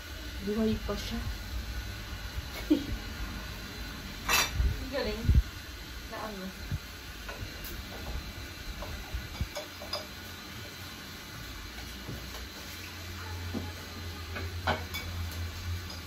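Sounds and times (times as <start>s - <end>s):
kitchen utensils clinking: 4.2s - 4.7s, 8.8s - 10.2s, 14.3s - 16.0s.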